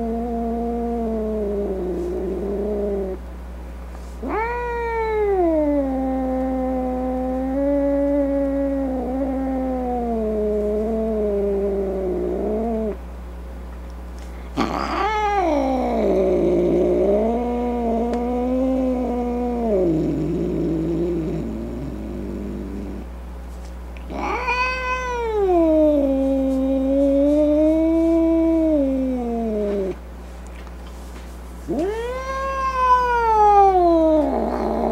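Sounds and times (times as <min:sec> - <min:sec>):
steady low hum: 0:00.0 - 0:34.9
cat yowling: 0:04.2 - 0:10.2, 0:14.6 - 0:19.9, 0:24.1 - 0:29.9, 0:31.7 - 0:34.9.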